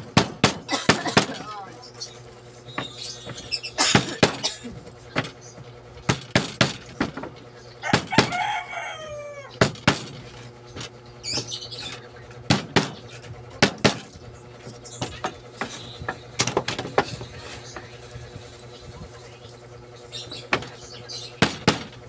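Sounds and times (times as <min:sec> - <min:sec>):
falling squeaky call: 0:02.6 - 0:03.8.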